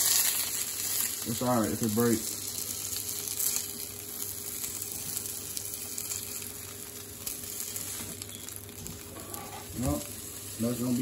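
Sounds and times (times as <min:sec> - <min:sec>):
oil sizzling in a skillet: 0:00.0 - 0:11.0.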